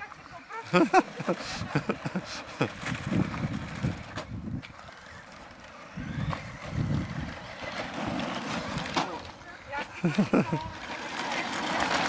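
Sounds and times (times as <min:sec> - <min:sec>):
toy cars on gritty path: 0:00.0 - 0:12.0
wind buffeting microphone: 0:01.2 - 0:05.2, 0:05.8 - 0:09.0.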